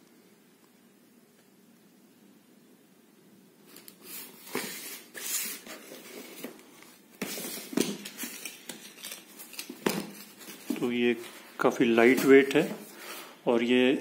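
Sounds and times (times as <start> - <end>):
tissue paper and plastic rustling: 3.7 - 13.3.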